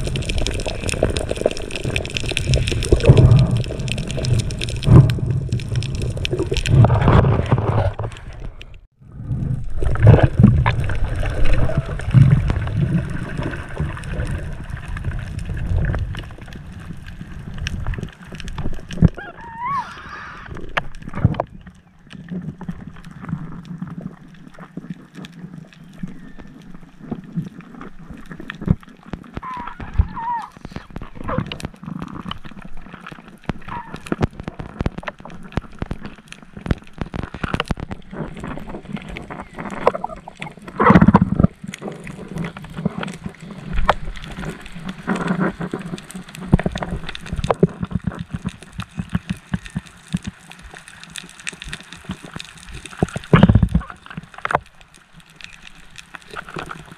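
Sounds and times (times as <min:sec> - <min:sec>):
underwater crackling clicks: 0:00.0 - 0:08.8, 0:09.6 - 0:19.2, 0:20.5 - 0:56.9
gurgling water rush: 0:00.0 - 0:21.4
muffled water movement: 0:00.0 - 0:56.9.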